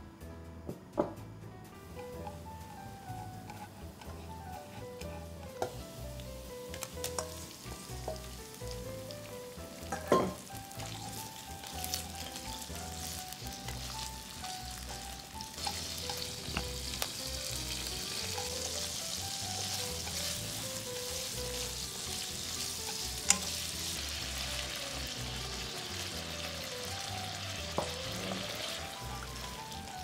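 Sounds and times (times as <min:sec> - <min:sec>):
food sizzling in a frying pan: 0:01.8 - 0:30.0
chopsticks tapping a pan: 0:03.4 - 0:05.9, 0:06.6 - 0:07.4, 0:08.0 - 0:08.4, 0:09.8 - 0:10.9, 0:15.1 - 0:17.2, 0:18.2 - 0:23.6, 0:27.6 - 0:28.5.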